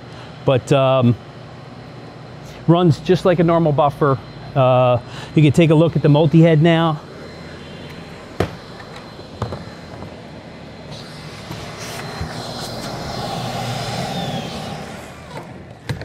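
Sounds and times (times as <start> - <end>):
vacuum motor whining: 3.3 - 16.0.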